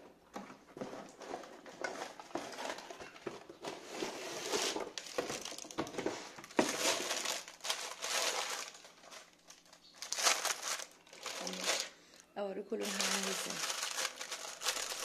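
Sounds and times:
cardboard box rustling: 0.8 - 9.3, 12.9 - 15.0
plastic film crinkling: 0.8 - 12.2, 12.8 - 15.0.

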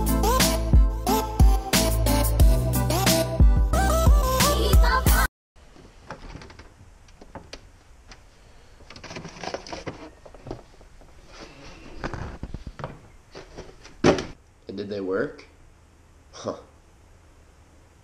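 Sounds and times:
background music: 0.0 - 5.3.

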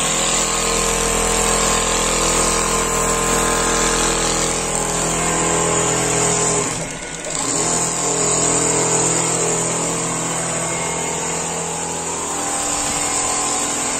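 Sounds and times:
quilting machine humming: 0.0 - 13.9.

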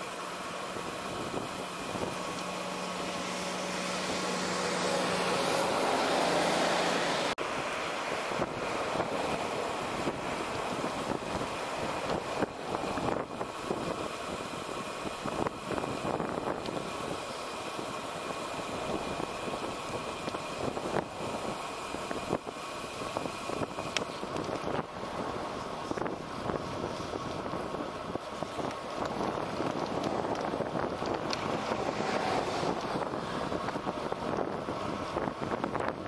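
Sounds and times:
road traffic passing: 0.0 - 36.0
wind rushing over microphone: 0.7 - 36.0
wind buffeting thumps: 8.3 - 17.2, 17.8 - 36.0.

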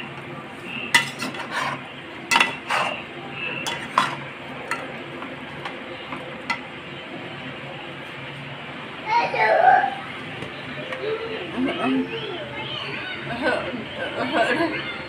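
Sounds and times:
metal spoon scraping in pot: 0.9 - 3.0, 3.6 - 4.9.

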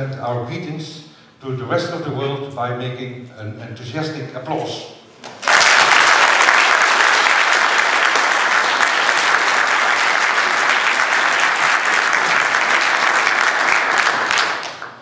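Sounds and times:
large audience applauding: 5.2 - 15.0.

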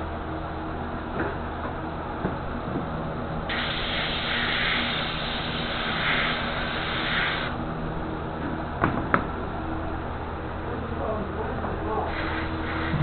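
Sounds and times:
airbrush air hiss: 3.5 - 7.6, 12.1 - 13.0.

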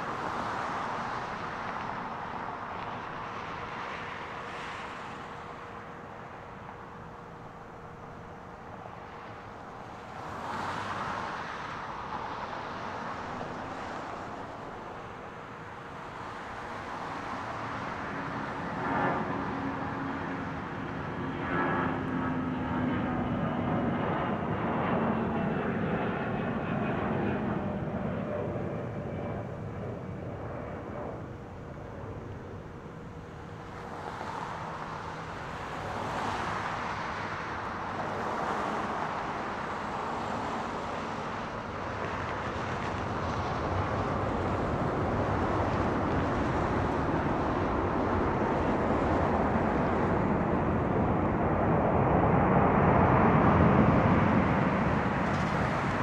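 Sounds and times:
distant jet engines rumbling: 0.1 - 56.0.

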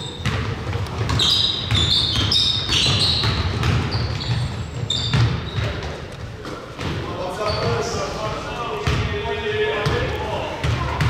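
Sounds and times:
basketball dribbling thuds: 0.0 - 7.9, 8.8 - 9.2, 9.8 - 11.0
shoes squeaking on hardwood: 0.0 - 8.0.

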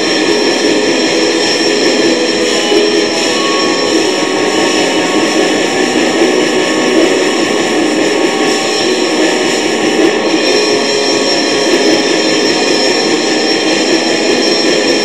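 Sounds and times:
distorted guitar metal music: 0.0 - 15.0.

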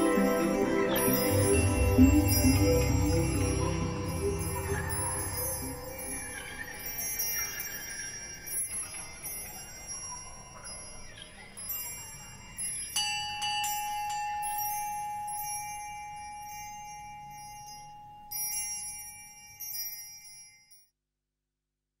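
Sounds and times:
long ringing tone: 0.0 - 9.0
bell-like chimes ringing: 0.0 - 20.8.

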